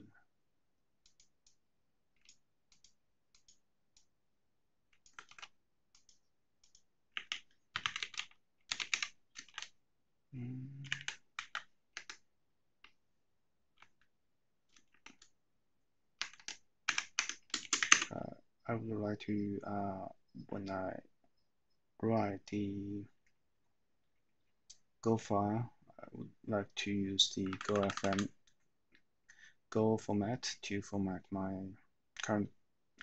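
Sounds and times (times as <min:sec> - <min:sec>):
computer keyboard typing: 0:01.0 - 0:04.1, 0:04.9 - 0:09.8, 0:10.8 - 0:13.0, 0:13.7 - 0:15.4, 0:16.1 - 0:18.2, 0:27.3 - 0:28.6.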